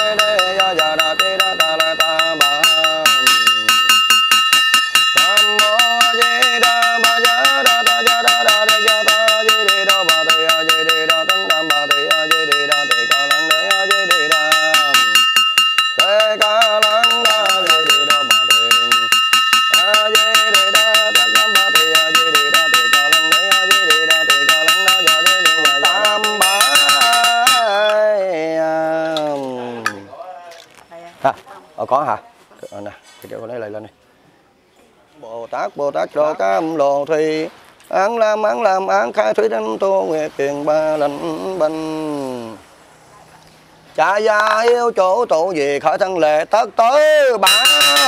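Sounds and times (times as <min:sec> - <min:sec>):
small brass bell ringing: 0:00.0 - 0:28.1, 0:47.4 - 0:48.0
monk chanting: 0:19.8 - 0:30.1, 0:35.4 - 0:42.6.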